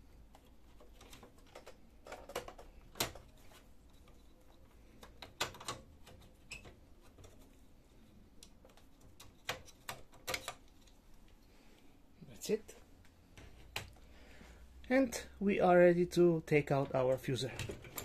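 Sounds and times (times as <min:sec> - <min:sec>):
plastic clicks and knocks: 0:00.3 - 0:03.3.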